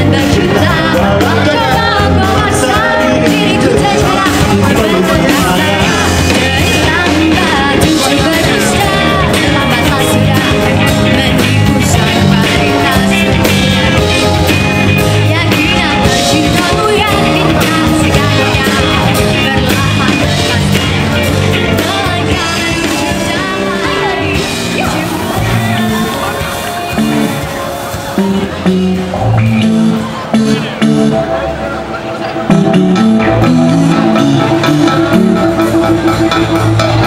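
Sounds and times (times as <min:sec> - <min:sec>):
person singing: 0:00.0 - 0:28.8
live rock band: 0:00.0 - 0:37.0.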